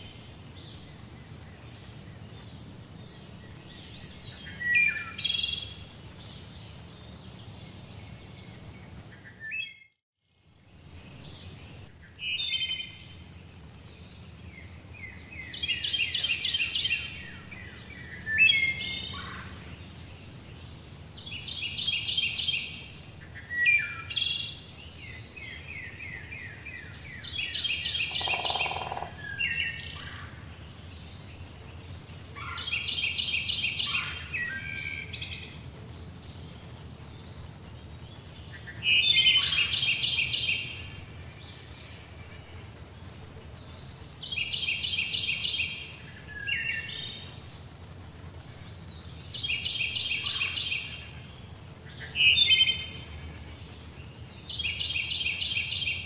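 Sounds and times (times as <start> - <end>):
low hiss: 10.3 - 56.0
bird chirps: 23.3 - 30.2
bird trilling: 28.0 - 29.2.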